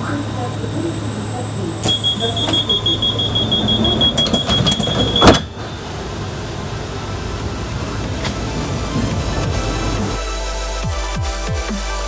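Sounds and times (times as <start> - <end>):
rapid high-pitched beeping: 0.0 - 5.9
train hum: 0.0 - 10.3
train doors thudding shut: 1.8 - 6.2.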